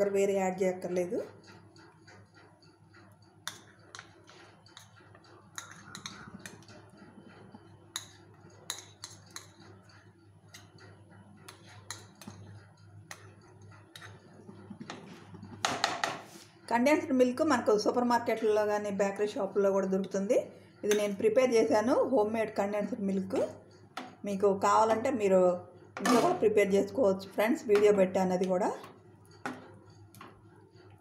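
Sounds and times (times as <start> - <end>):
metal spoon clinking and scraping pan: 3.4 - 6.7, 7.9 - 9.9, 11.5 - 14.3, 20.8 - 21.4, 26.0 - 26.6.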